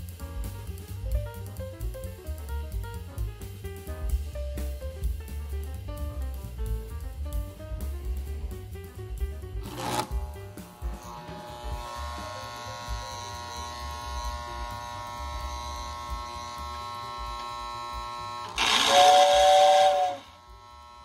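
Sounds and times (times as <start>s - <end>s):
toy train electric hum: 9.6s - 21.0s
two-tone toy train whistle: 18.4s - 21.0s.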